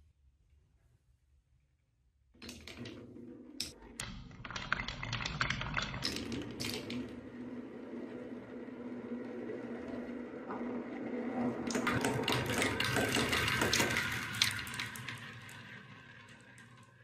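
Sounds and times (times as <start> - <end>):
marbles rolling on wooden tracks: 2.4 - 17.0
marbles clacking into plastic trays: 3.6 - 7.3, 11.7 - 15.6.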